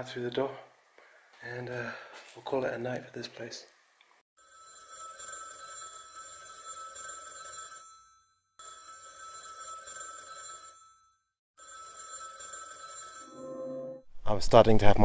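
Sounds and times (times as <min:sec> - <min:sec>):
telephone bell ringing: 0:04.4 - 0:14.0.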